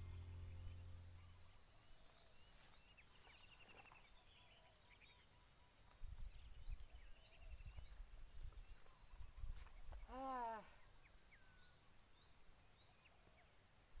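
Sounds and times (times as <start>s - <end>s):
low thumps: 0.0s - 1.4s.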